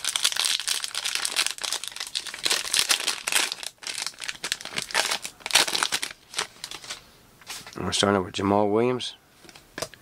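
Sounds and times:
foil wrapper crinkling: 0.0 - 7.0.

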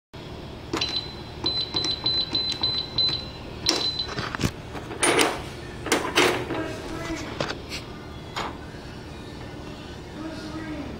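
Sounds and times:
keypad beeps: 0.8 - 4.2.

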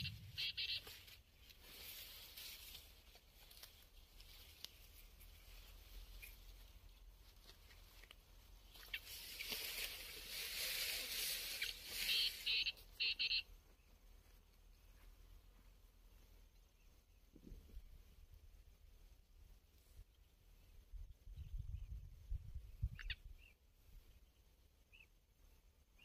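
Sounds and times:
short high bird calls: 0.0 - 1.2, 10.7 - 13.5
rustling and patter in grass: 0.0 - 24.3.

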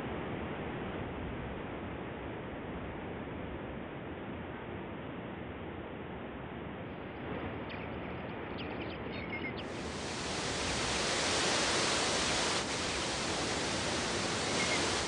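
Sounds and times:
waterfall pouring into pond: 9.6 - 15.0.

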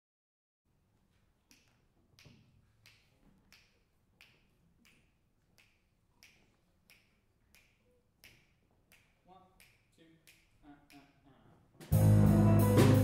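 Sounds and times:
faint finger snaps: 1.5 - 11.1.

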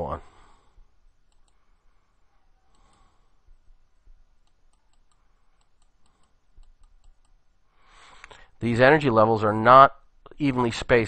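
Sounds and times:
computer mouse clicks: 1.2 - 1.6, 2.7 - 3.1, 4.4 - 7.4.

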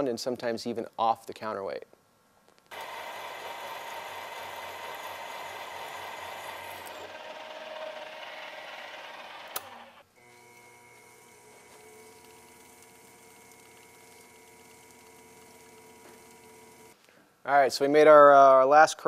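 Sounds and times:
drill press whirring: 2.7 - 17.0
sharp click: 9.5 - 9.8.

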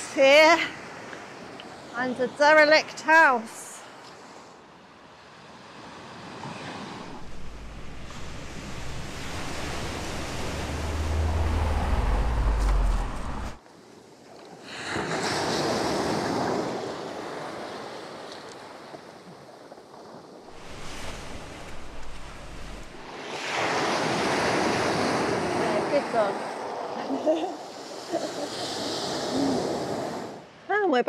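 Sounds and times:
surf on a pebble beach: 0.0 - 31.0
wind rumbling on microphone: 6.5 - 13.6, 19.3 - 27.4.

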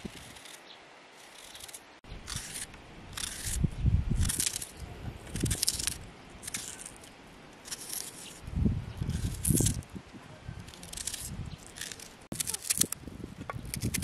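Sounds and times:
knife slicing onion crunches: 10.8 - 14.0.

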